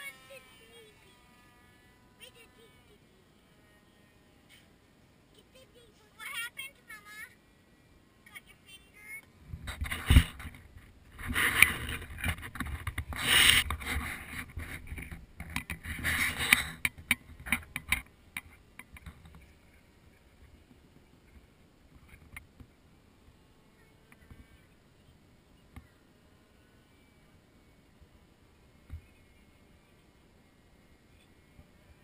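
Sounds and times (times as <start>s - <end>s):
wind rumbling on microphone: 9.4s - 17.9s.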